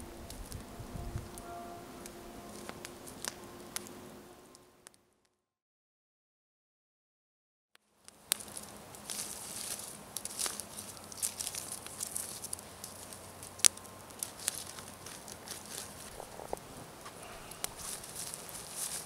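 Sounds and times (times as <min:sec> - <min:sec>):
campfire crackling and popping: 0:00.0 - 0:01.4, 0:02.0 - 0:05.0, 0:07.9 - 0:19.0
steady high hiss: 0:00.0 - 0:04.6.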